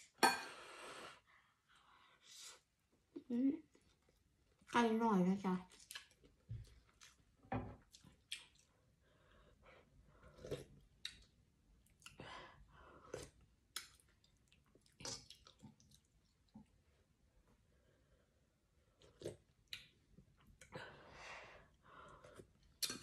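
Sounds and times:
chewing and mouth noises: 0:05.6 - 0:08.9, 0:10.3 - 0:12.2, 0:13.0 - 0:16.8.

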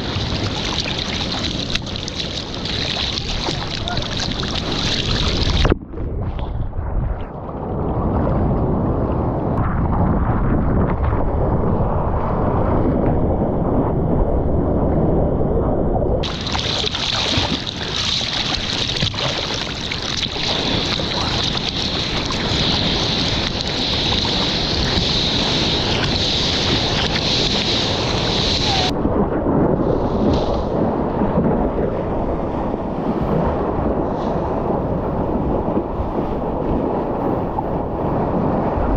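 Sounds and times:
seawater sloshing: 0:00.0 - 0:06.4, 0:16.2 - 0:29.0
wind buffeting microphone: 0:00.0 - 0:38.9
hiss of rushing water: 0:16.2 - 0:28.9, 0:29.8 - 0:30.9.

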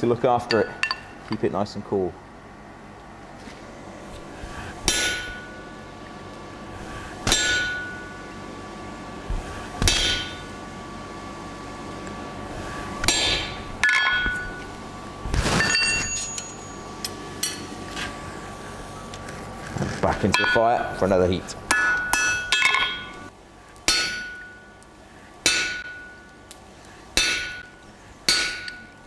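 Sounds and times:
hammer striking chisel on metal: 0:04.9 - 0:05.6, 0:07.3 - 0:08.1, 0:09.8 - 0:10.4, 0:13.0 - 0:14.6, 0:20.3 - 0:20.8, 0:21.7 - 0:23.2, 0:23.9 - 0:24.7, 0:25.4 - 0:26.2, 0:27.2 - 0:27.7, 0:28.3 - 0:28.9
ringing metal clatter: 0:15.6 - 0:16.9.

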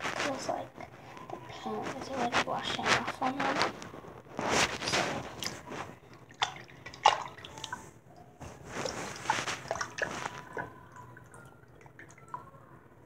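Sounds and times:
water splashing and dripping: 0:04.9 - 0:07.8, 0:08.7 - 0:12.5.

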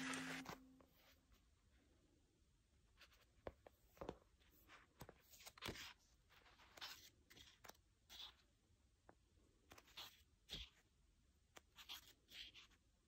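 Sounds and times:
pages flipping: 0:00.0 - 0:00.6, 0:03.9 - 0:08.3.

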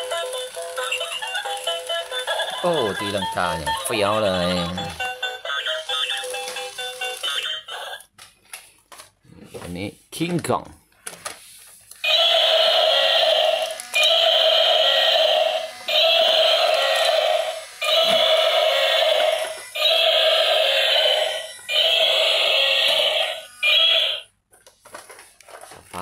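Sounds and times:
toy playing electronic sound: 0:00.0 - 0:08.0, 0:12.0 - 0:24.3.

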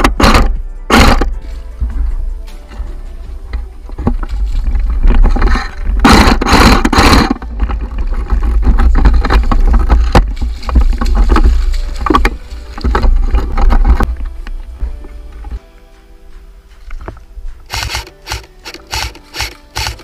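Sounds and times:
low wind rumble: 0:00.0 - 0:17.7
footsteps splashing through water: 0:07.8 - 0:15.0.

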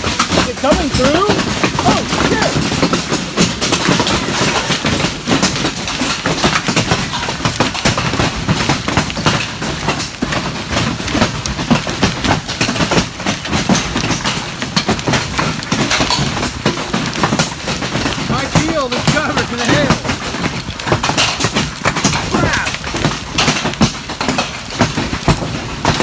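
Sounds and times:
hail pounding a metal roof: 0:00.0 - 0:26.0.

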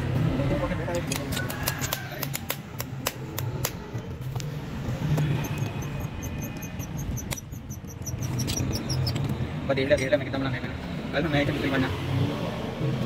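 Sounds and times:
sharp metal clicks and taps: 0:00.9 - 0:03.8, 0:05.1 - 0:09.4.

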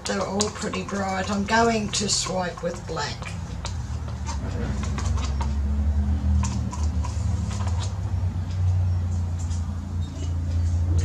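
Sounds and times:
paint containers and tools clicking: 0:00.0 - 0:09.6.

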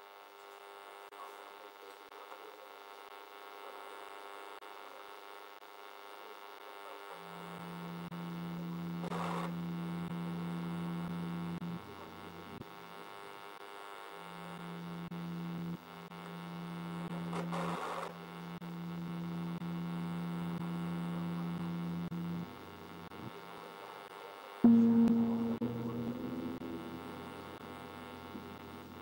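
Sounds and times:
low electrical hum: 0:07.4 - 0:13.1, 0:14.2 - 0:23.7, 0:24.6 - 0:29.0.

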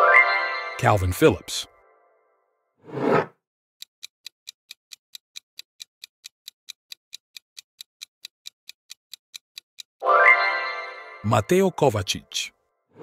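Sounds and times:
clock-like ticking: 0:03.8 - 0:10.0.

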